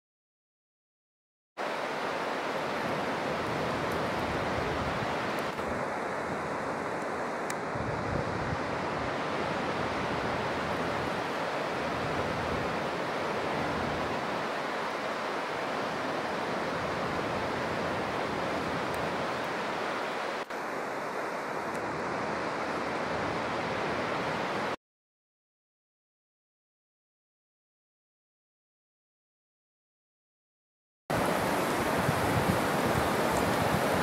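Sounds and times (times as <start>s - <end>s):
rushing outdoor ambience: 1.6s - 24.8s, 31.1s - 34.0s
wind buffeting microphone: 7.7s - 12.9s, 31.1s - 34.0s.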